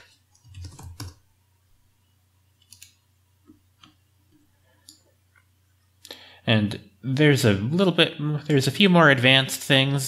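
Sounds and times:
low steady hum: 0:00.0 - 0:10.0
computer mouse clicks: 0:02.6 - 0:03.0.

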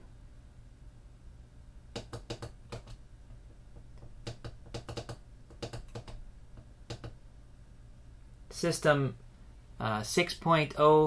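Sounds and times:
low computer hum: 0:00.0 - 0:11.0.

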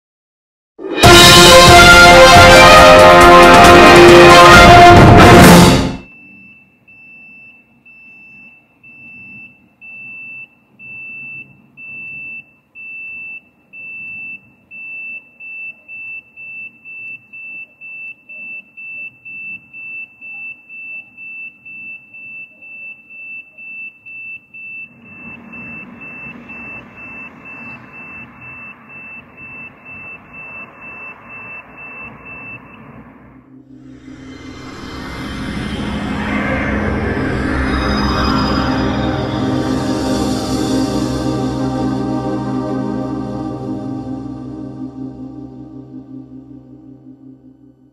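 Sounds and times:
crossing signal beeping: 0:06.0 - 0:33.0.

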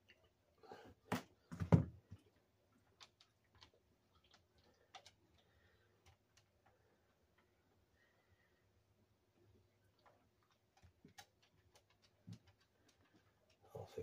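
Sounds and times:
light clicks and taps: 0:02.1 - 0:07.6, 0:09.9 - 0:14.0.

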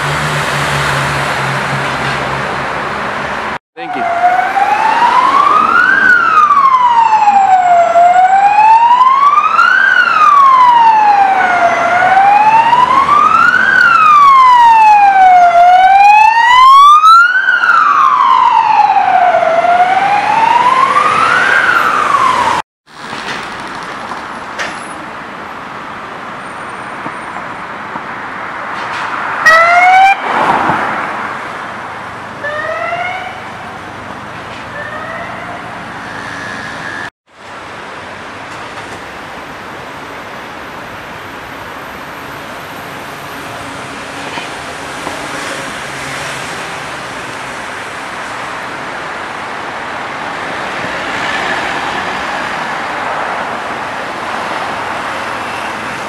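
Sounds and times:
traffic noise: 0:00.0 - 0:56.0
siren wailing: 0:03.8 - 0:22.6, 0:29.5 - 0:30.2, 0:32.4 - 0:33.5, 0:34.8 - 0:37.1.

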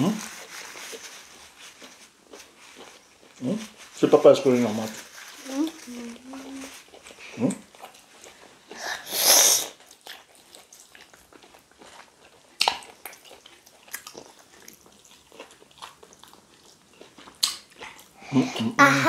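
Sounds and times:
people chewing soft food: 0:00.0 - 0:18.8
short loud hiss: 0:09.1 - 0:09.8.

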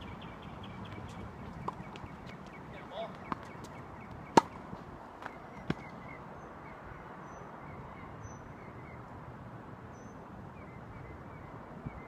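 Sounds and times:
tennis racket hitting ball: 0:03.2 - 0:04.6.

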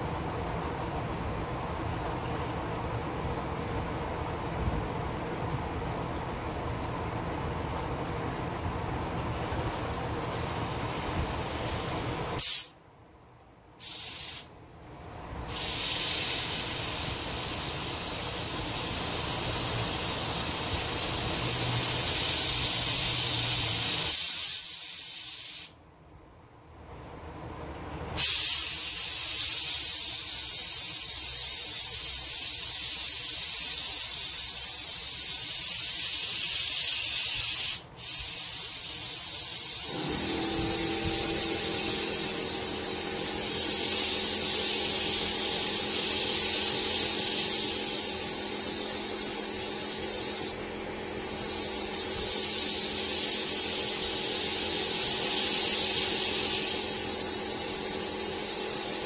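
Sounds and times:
low multi-tone hum: 0:00.0 - 0:13.8, 0:14.5 - 0:23.9, 0:38.6 - 0:59.0.

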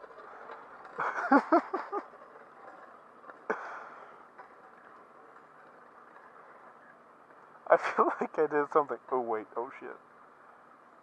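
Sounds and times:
man laughing: 0:01.0 - 0:02.1, 0:07.8 - 0:08.4.

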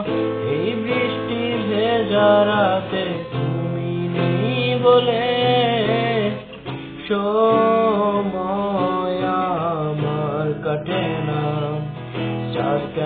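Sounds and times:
acoustic guitar: 0:00.0 - 0:13.0
man singing: 0:00.0 - 0:13.0.

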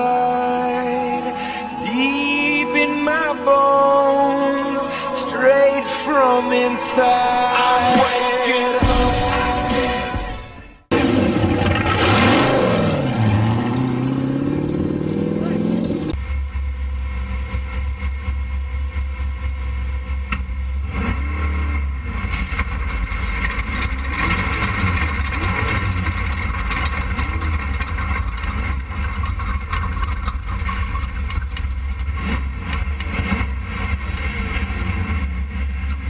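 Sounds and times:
race car engine revving: 0:10.9 - 0:36.0
wind and road noise rumble: 0:11.0 - 0:16.8.

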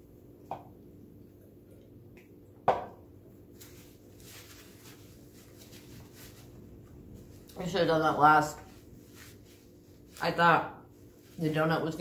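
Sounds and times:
knock on table: 0:02.6 - 0:03.0
paper napkin rustling: 0:03.4 - 0:12.0.

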